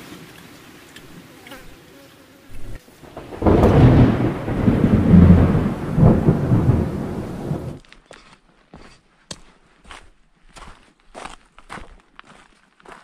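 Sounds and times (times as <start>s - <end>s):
rain: 0.0s - 7.8s
rolling thunder rumble: 3.0s - 7.8s.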